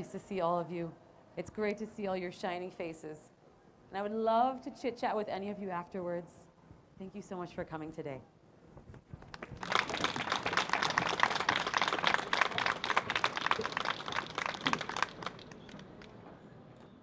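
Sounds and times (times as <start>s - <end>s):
audience applauding: 9.2s - 16.2s.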